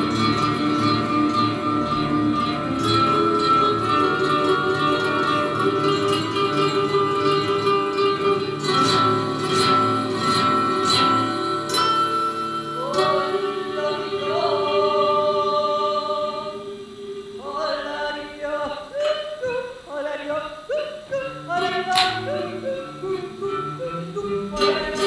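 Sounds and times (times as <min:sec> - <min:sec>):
plucked guitar notes: 0:00.0 - 0:14.6, 0:20.7 - 0:25.0
person singing long notes: 0:12.7 - 0:25.0.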